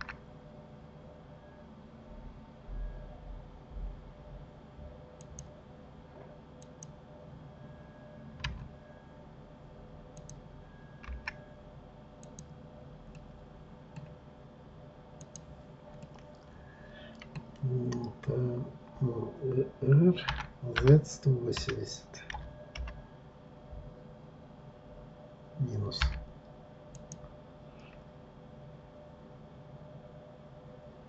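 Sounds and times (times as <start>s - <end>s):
computer mouse clicks: 0.0s - 0.2s, 5.2s - 5.5s, 6.6s - 7.0s, 10.2s - 10.4s, 11.0s - 11.4s, 12.2s - 12.5s, 13.1s - 14.2s, 15.2s - 16.5s, 26.9s - 28.0s
faint steady hum: 0.0s - 31.0s.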